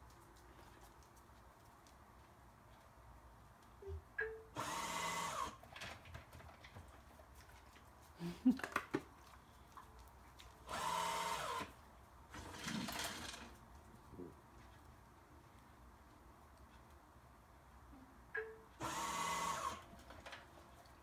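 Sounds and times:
motorised food pod whirring: 4.6 - 5.6, 10.6 - 11.7, 12.3 - 13.6, 18.8 - 20.4.

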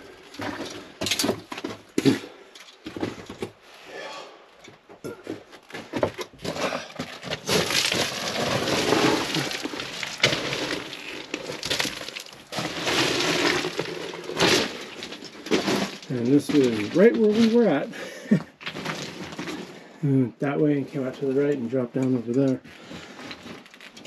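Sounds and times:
footsteps crunching on rock rubble: 4.8 - 19.9
stones clattering: 5.6 - 19.8.

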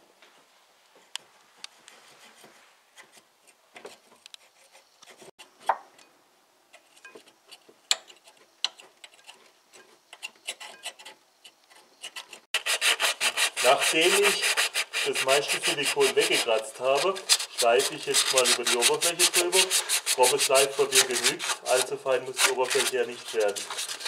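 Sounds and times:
scraper scratching sealant: 12.0 - 24.0
sandpaper rubbing on metal: 12.1 - 24.0.

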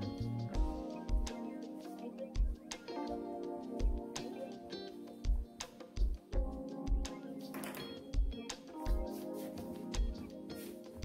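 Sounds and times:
low beat: 0.0 - 4.3, 8.0 - 11.0
instrumental background music: 0.0 - 11.0.

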